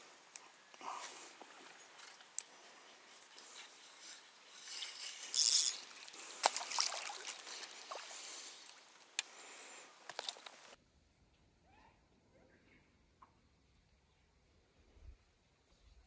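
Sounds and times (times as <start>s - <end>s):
fish splashing at water surface: 5.3s - 8.9s.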